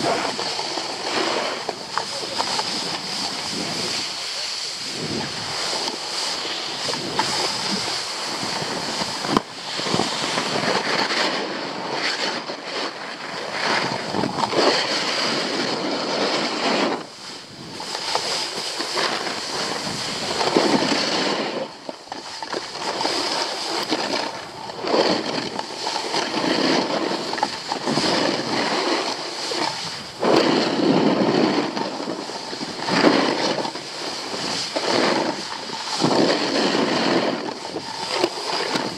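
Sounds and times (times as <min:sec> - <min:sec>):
skis scraping on packed snow: 0:00.0 - 0:38.9
wind rushing over microphone: 0:00.0 - 0:38.9.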